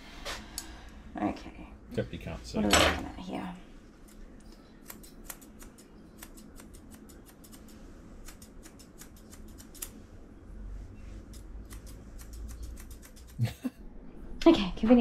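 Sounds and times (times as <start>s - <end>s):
scissors snipping fur: 4.0s - 10.0s, 11.2s - 13.5s.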